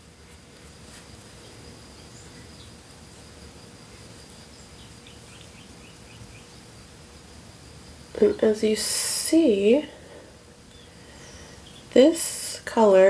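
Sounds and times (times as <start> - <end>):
faint high-pitched whine: 0.0 - 13.0
steady hiss: 0.0 - 13.0
faint high chirps: 3.9 - 6.6.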